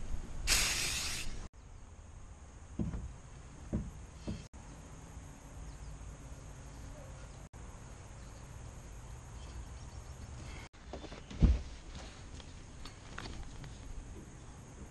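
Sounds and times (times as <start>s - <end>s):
soft knocks: 2.8s - 4.5s.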